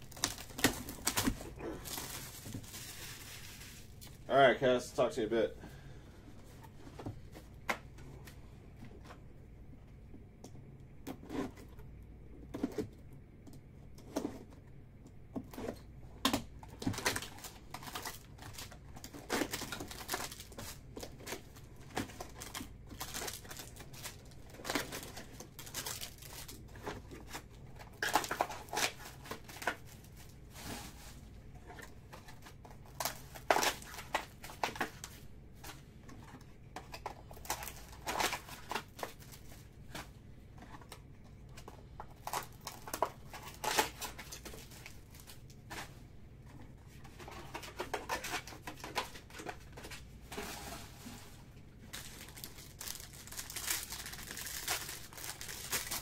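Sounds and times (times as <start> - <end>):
plastic wrap and cardboard tearing: 0.0 - 4.3, 16.4 - 35.8, 36.9 - 40.1, 42.1 - 45.9, 47.1 - 51.2, 51.8 - 56.0
crinkling and rustling of packs: 0.0 - 5.5, 15.4 - 56.0.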